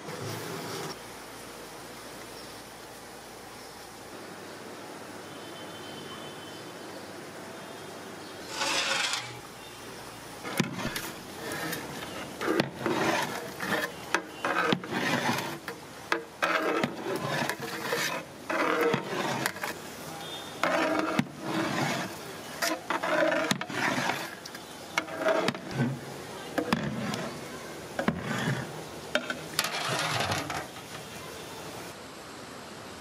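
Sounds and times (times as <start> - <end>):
ladle scraping cooking pot: 8.4 - 9.5, 10.4 - 19.9, 20.6 - 31.1.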